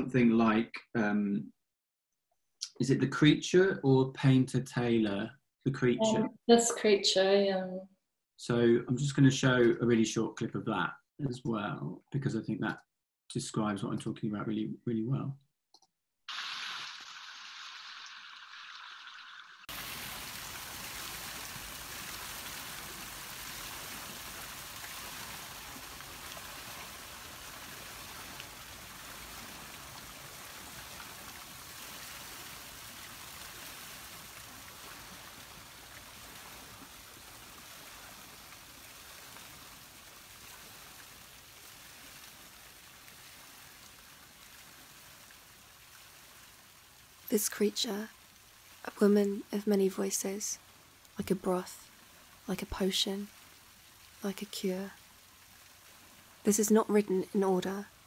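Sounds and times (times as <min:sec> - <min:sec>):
fountain water splashing into pond: 0:16.3 - 0:48.9, 0:53.3 - 0:54.2, 0:54.9 - 0:56.5.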